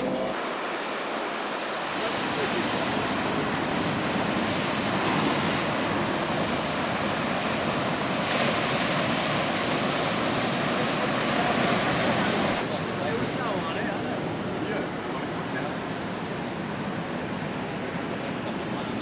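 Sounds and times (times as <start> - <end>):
surf breaking on sandy beach: 0.3 - 19.0.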